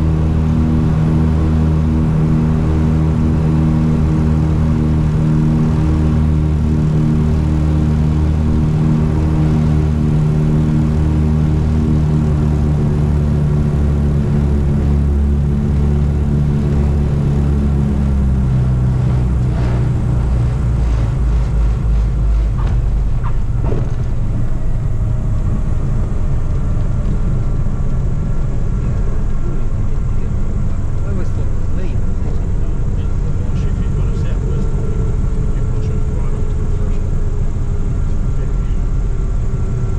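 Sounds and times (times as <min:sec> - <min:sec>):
aircraft engines and propellers droning: 0:00.0 - 0:39.9
wheels touching down with a thud: 0:19.0 - 0:24.6.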